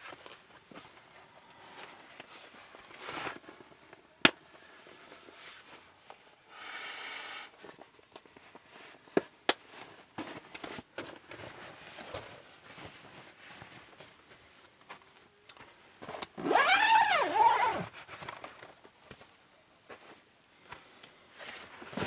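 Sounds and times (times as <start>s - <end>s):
zip being drawn: 16.4s - 17.9s.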